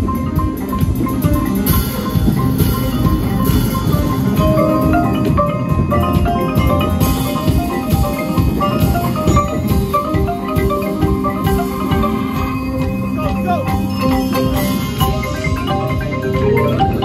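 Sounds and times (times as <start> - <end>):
drum hits: 0.0 - 17.0
marimbas playing quick runs: 0.0 - 17.0.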